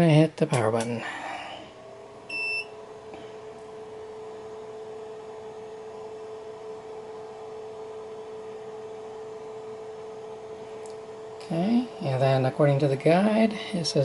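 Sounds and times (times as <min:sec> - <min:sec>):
three d printer humming: 0:00.0 - 0:14.0.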